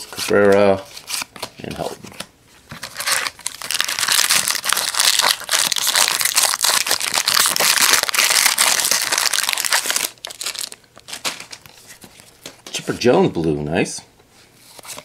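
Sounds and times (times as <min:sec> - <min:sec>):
foil wrapper tearing and crinkling: 0:02.8 - 0:11.6.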